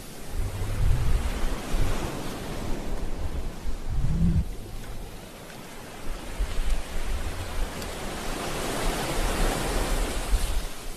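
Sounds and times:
wind buffeting microphone: 0:00.0 - 0:10.9.

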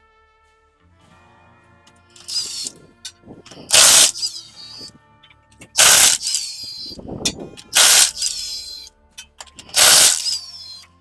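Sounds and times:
impact wrench hammering: 0:03.7 - 0:04.4, 0:05.8 - 0:06.9, 0:07.8 - 0:08.8, 0:09.7 - 0:10.8.

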